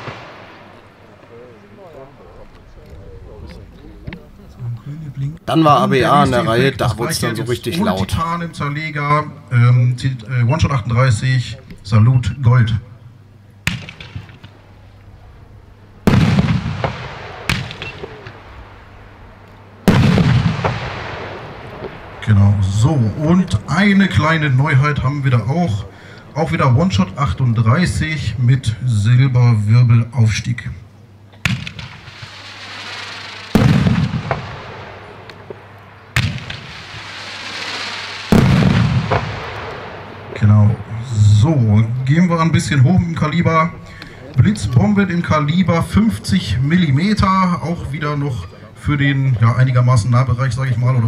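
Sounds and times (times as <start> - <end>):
loud firework bang with echo: 0.0 - 1.3, 13.6 - 14.5, 16.1 - 19.0, 19.8 - 22.3, 31.4 - 40.4
firework launch crack: 0.0 - 2.7, 13.6 - 14.8, 16.0 - 24.4, 31.4 - 42.1
whistling hiss of rising firework: 31.8 - 35.2, 36.2 - 39.7.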